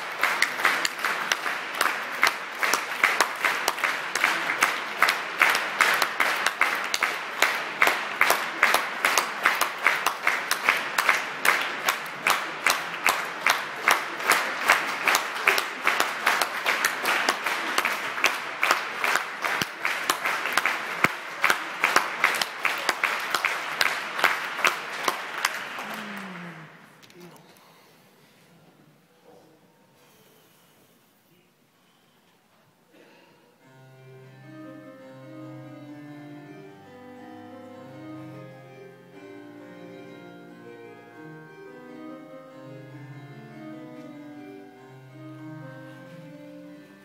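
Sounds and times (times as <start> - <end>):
audience clapping in rhythm: 0.0 - 27.1.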